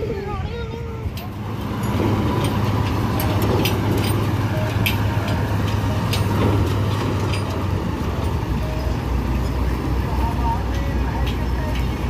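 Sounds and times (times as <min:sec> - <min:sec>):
heavy diesel engine running: 0:00.0 - 0:12.0
sharp clicks and rattles: 0:01.1 - 0:08.6.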